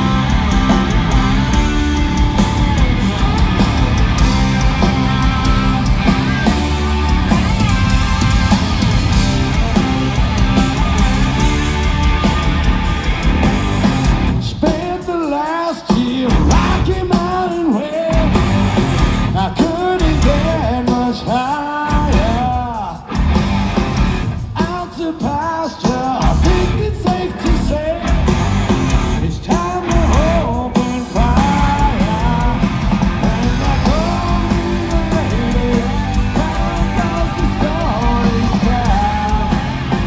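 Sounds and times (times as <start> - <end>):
bass guitar: 0.0 - 14.8, 16.3 - 17.3, 18.1 - 21.1, 21.9 - 24.6, 26.2 - 40.0
drums: 0.0 - 40.0
electric guitar: 0.0 - 40.0
lead singer singing: 14.4 - 23.1, 24.5 - 28.4, 29.2 - 40.0.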